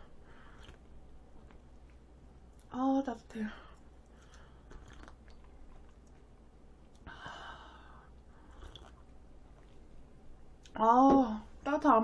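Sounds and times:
sipping from a mug: 4.2 - 6.0, 8.5 - 9.1
breathy exhale: 7.0 - 8.8.

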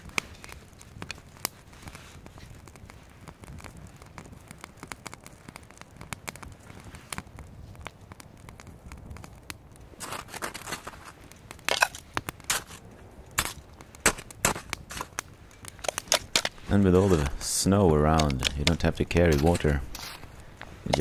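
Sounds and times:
twig fire crackling: 0.0 - 21.0
sticks crunching in snow: 10.0 - 12.8, 13.4 - 21.0.

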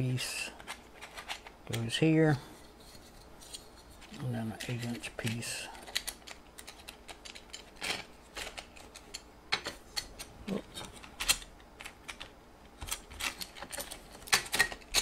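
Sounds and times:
metal frame pieces clicking: 3.5 - 10.3, 10.9 - 15.0.

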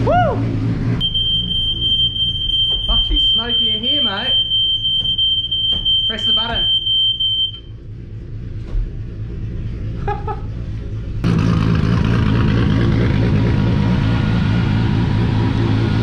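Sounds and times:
car engine running loudly: 0.0 - 1.0, 7.8 - 16.0
faint low rumble: 0.0 - 16.0.

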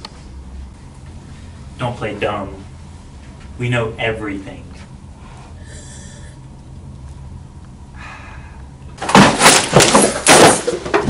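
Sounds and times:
heavy crashing and banging: 9.0 - 11.0.

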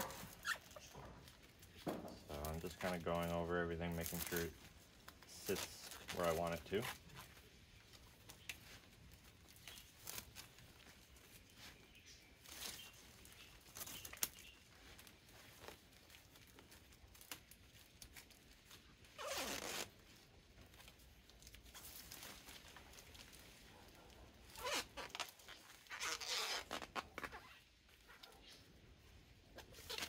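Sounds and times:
plastic tape crinkling: 0.0 - 30.0.

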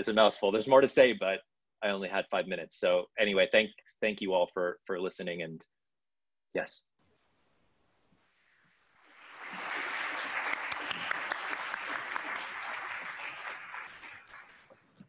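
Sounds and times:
small audience applauding: 9.0 - 15.0.

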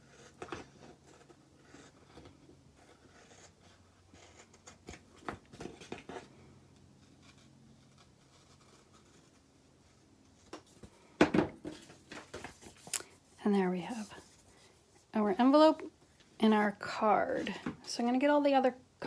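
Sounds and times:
paper rustling: 11.6 - 13.2.

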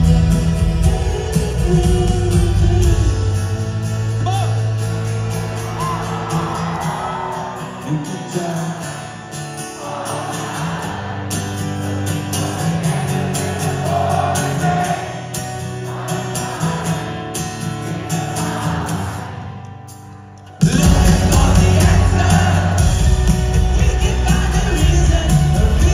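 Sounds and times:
person singing: 0.0 - 3.8, 20.6 - 25.9
live rock band: 0.0 - 19.4, 20.0 - 25.9.

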